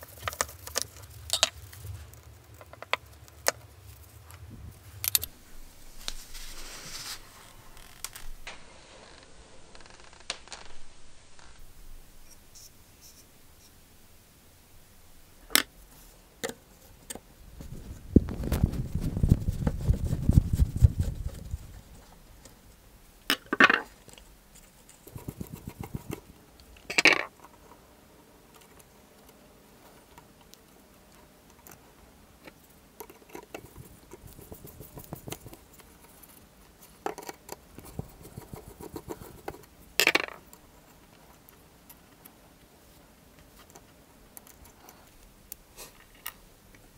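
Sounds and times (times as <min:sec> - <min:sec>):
low rubbing noise: 0:00.9 - 0:13.8, 0:17.5 - 0:22.2
metal and plastic parts clicking: 0:05.0 - 0:05.3.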